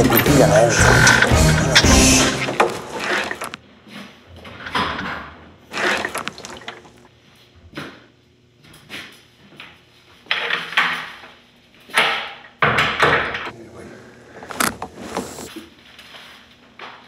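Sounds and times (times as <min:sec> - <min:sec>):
water splashing into toilet: 0:05.7 - 0:07.1.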